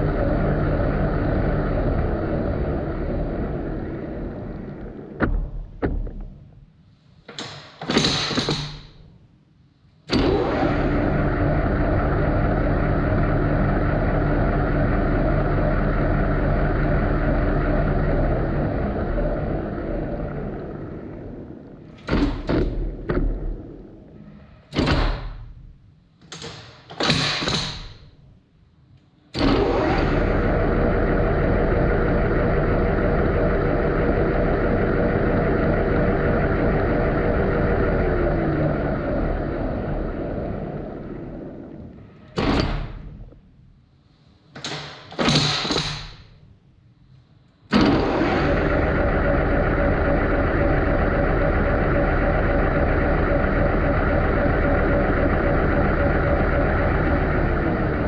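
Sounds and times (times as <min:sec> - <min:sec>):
lathe spindle running: 0:10.2 - 0:21.8, 0:29.4 - 0:41.9, 0:47.8 - 0:58.0
lathe gear clunks: 0:21.9 - 0:23.9, 0:24.7 - 0:25.6, 0:47.7 - 0:58.0.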